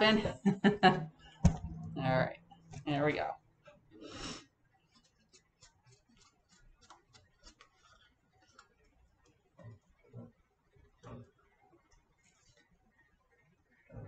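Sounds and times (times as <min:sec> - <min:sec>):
soft low thumps: 0:00.0 - 0:03.0.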